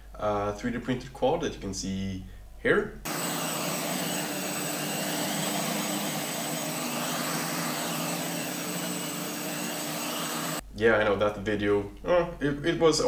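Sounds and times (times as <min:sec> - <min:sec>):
drone motors and propellers: 0:03.1 - 0:10.6.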